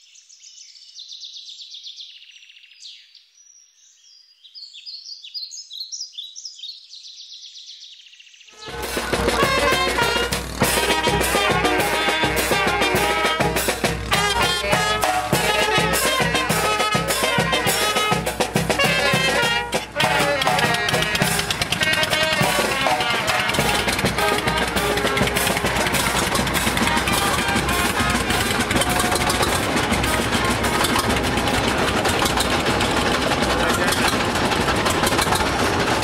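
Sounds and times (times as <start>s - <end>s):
bass drum and snare beat: 8.6s - 36.0s
steady noise: 8.6s - 36.0s
trumpets and saxophones: 8.6s - 36.0s.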